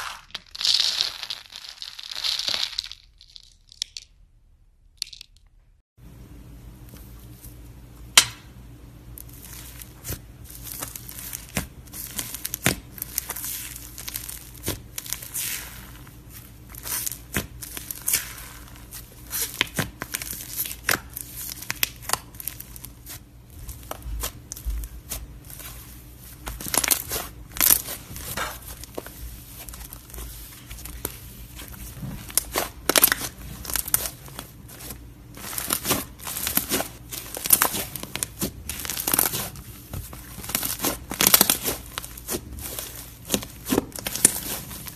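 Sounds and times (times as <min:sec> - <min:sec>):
slime crackling and popping: 0:00.0 - 0:04.0, 0:32.2 - 0:39.6, 0:40.4 - 0:44.9.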